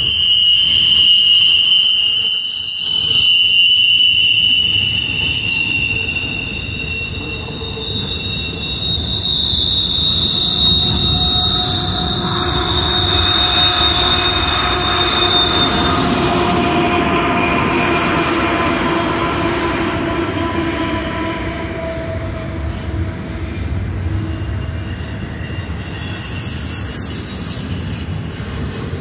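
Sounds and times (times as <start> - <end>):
wheel squeal: 0.0 - 29.0
freight train rumbling: 4.7 - 29.0
diesel locomotives passing: 6.2 - 29.0.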